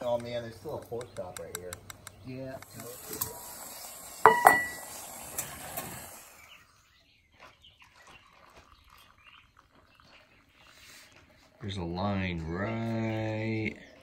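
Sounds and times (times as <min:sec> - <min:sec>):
light metal clinks: 0:04.3 - 0:05.0
metal pot clanking on stove: 0:04.3 - 0:05.0.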